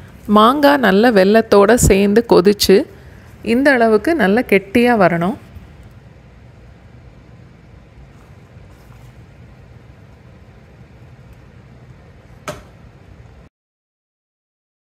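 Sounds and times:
steady low hum: 0:00.0 - 0:13.5.

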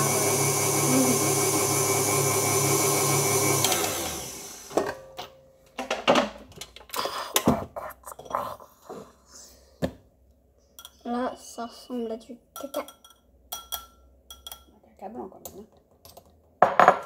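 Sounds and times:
electric mixer running: 0:00.0 - 0:04.9
utensils clinking against bowl: 0:12.6 - 0:14.7.

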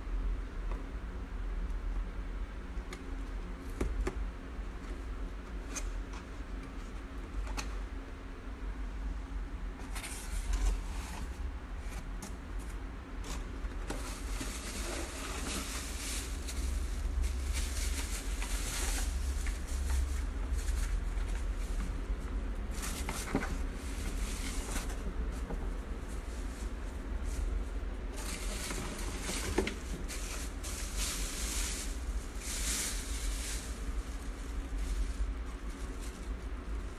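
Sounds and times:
steady low rumble: 0:06.2 - 0:36.9
packaging rustling and crinkling: 0:09.8 - 0:36.9.

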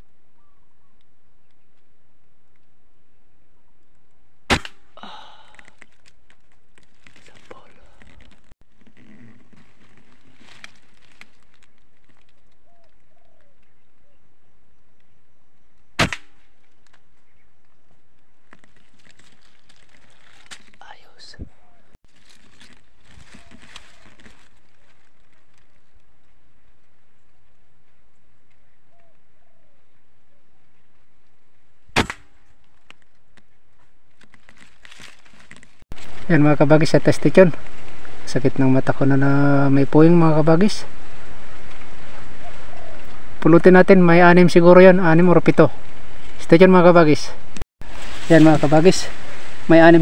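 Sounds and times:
air rifle shot: 0:04.5 - 0:04.8, 0:16.0 - 0:16.4, 0:31.9 - 0:32.3.

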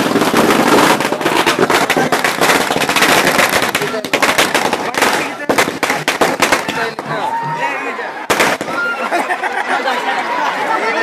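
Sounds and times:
firecrackers banging: 0:00.0 - 0:07.6, 0:08.2 - 0:09.3.

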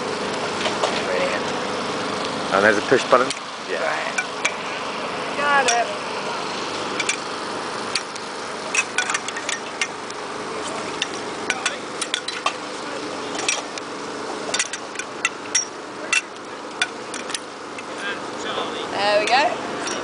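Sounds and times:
aluminium tubes clinking together: 0:07.0 - 0:07.3, 0:08.7 - 0:10.0, 0:11.0 - 0:12.6, 0:13.3 - 0:13.8, 0:14.5 - 0:17.9, 0:19.2 - 0:20.0.

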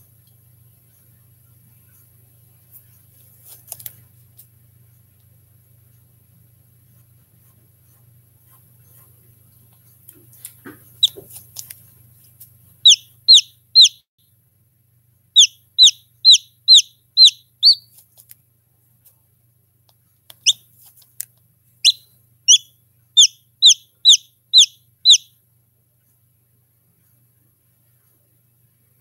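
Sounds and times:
chick peeping: 0:10.9 - 0:11.4, 0:12.8 - 0:14.0, 0:15.4 - 0:18.0, 0:20.3 - 0:20.6, 0:21.8 - 0:25.3.

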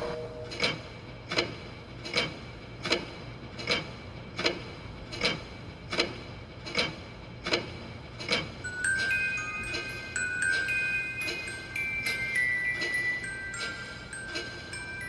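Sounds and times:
clock ticking with bright ring: 0:00.0 - 0:15.0
chime melody: 0:08.6 - 0:15.0.

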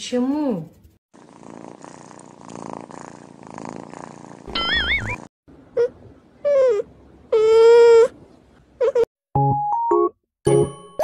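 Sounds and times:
kittens purring: 0:01.2 - 0:05.2
high-pitched warbling squeak: 0:04.5 - 0:05.2.

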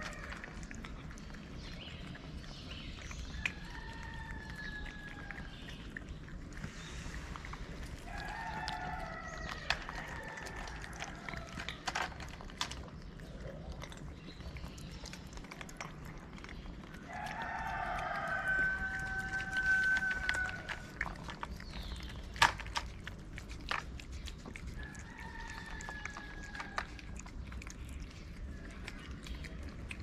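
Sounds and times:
cats chewing wet food: 0:00.0 - 0:30.0
long drawn-out animal call: 0:17.2 - 0:20.9.

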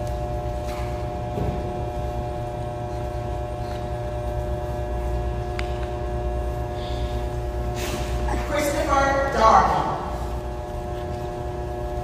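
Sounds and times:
steady electrical hum: 0:00.0 - 0:12.0.

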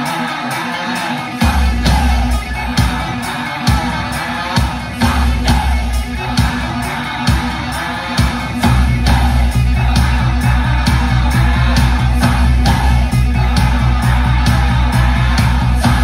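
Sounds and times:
heavy bass line: 0:00.0 - 0:16.0
song with singing over speakers: 0:00.0 - 0:16.0
drum hits: 0:01.4 - 0:16.0.

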